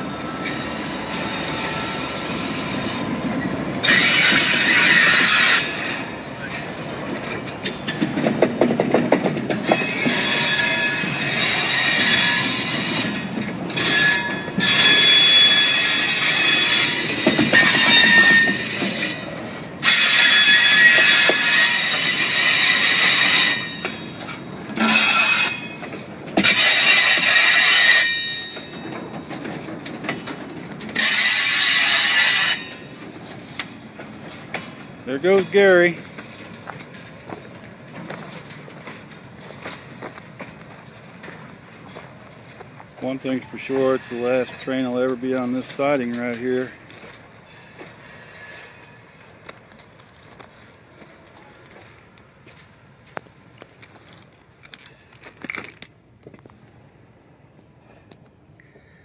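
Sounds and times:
train wheels squealing on rail: 0.0s - 29.3s, 30.9s - 34.0s, 43.0s - 49.3s
wheels rumbling and clanking: 0.0s - 59.0s.

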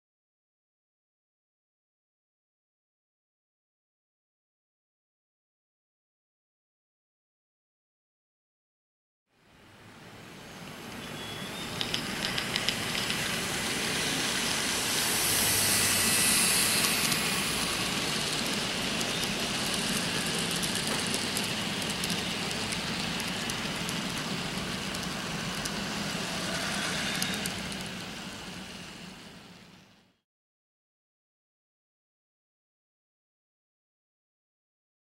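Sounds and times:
model train running on track: 9.9s - 30.1s
track clicks: 11.6s - 13.4s.

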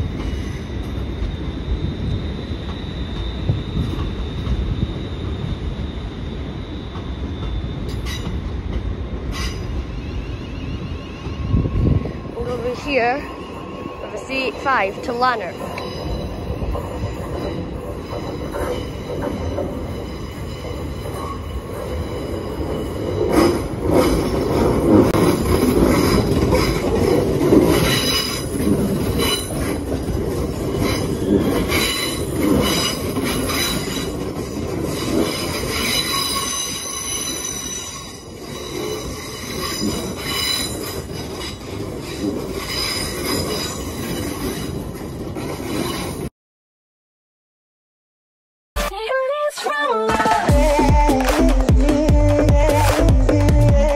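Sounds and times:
train wheels squealing: 0.0s - 46.3s
wheels clicking over rail joints: 14.2s - 46.3s.

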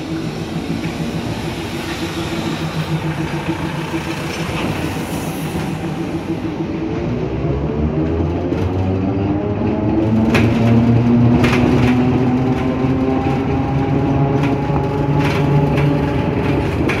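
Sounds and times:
vehicle engine running: 0.0s - 17.0s
knocks and rattles: 10.0s - 17.0s.

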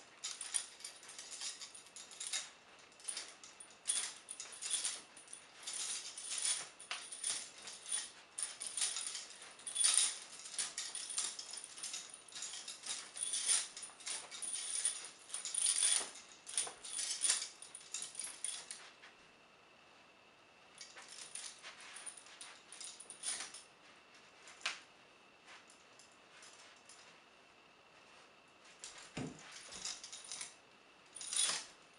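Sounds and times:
chains clinking and jingling: 0.0s - 18.9s, 20.8s - 23.7s, 28.8s - 31.7s.

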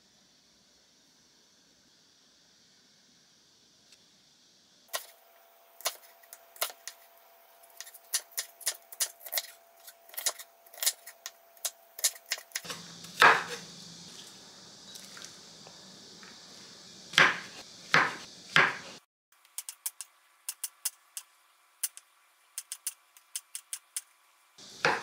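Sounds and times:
knife chopping on wooden board: 12.0s - 13.6s, 17.1s - 18.9s, 24.8s - 25.0s.

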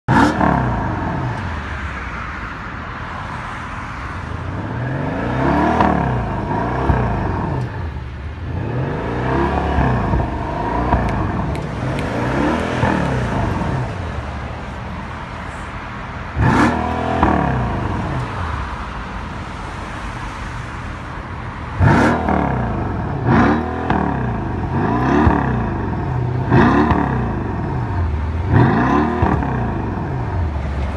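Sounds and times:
car engine revving: 0.1s - 1.5s, 4.5s - 14.4s, 16.3s - 18.5s, 21.7s - 30.7s.

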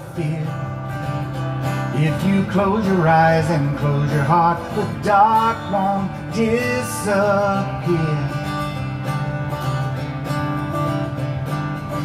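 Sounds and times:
man singing: 0.0s - 1.0s, 1.8s - 8.7s
strummed acoustic guitar: 0.0s - 12.0s.

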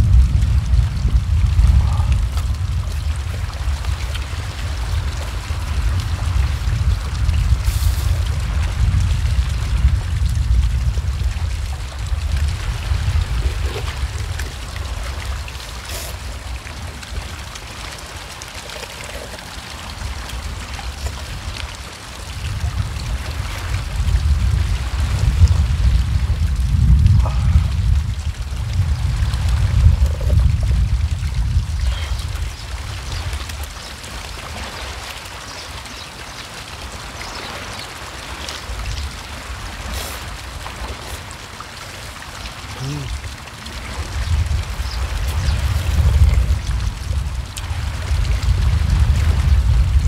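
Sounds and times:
wind buffeting microphone: 0.0s - 36.0s, 36.8s - 50.0s
water washing among rocks: 0.0s - 50.0s
people slurping noodles: 13.2s - 16.4s, 18.6s - 19.9s, 39.8s - 41.3s, 42.7s - 43.2s
sipping broth: 13.2s - 16.5s.

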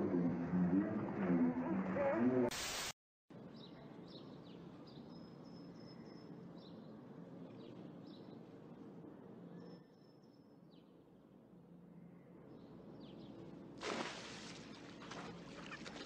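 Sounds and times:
small birds chirping: 3.4s - 11.3s.

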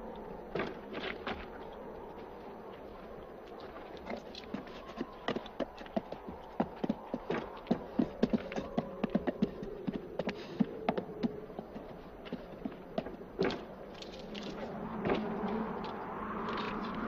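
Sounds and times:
horse hooves clopping on dirt: 0.1s - 17.0s.

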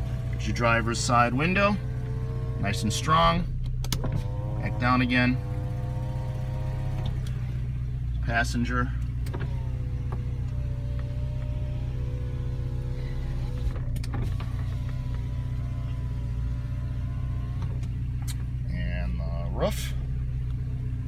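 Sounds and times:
car engine idling: 0.0s - 21.0s
electric window motor whining: 1.0s - 3.2s, 3.8s - 7.6s, 9.2s - 18.0s.

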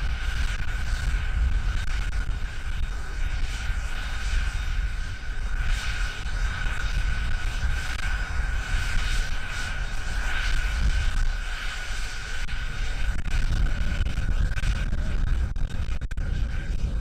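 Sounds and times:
jet engines idling whine: 0.0s - 17.0s
wind rumble on microphone: 0.0s - 17.0s.

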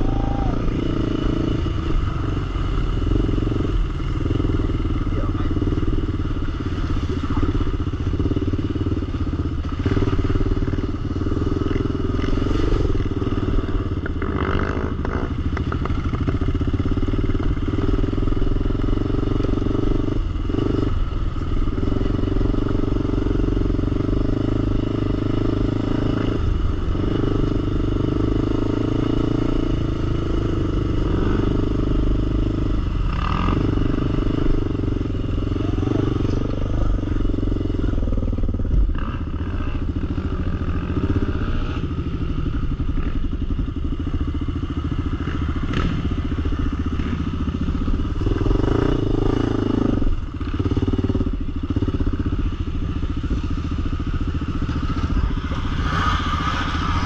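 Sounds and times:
atv engine running: 0.0s - 57.0s.

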